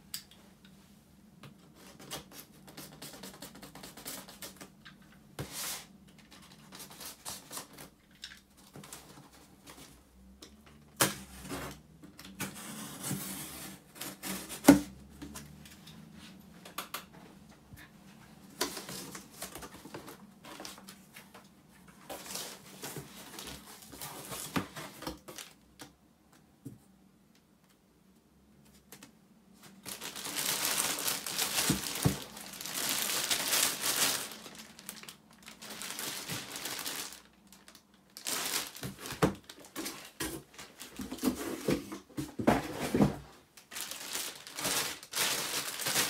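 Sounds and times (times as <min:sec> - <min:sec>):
plastic wrapping rustling: 0:18.4 - 0:25.6, 0:29.6 - 0:46.0
cardboard flaps scraping and knocking: 0:40.1 - 0:43.3.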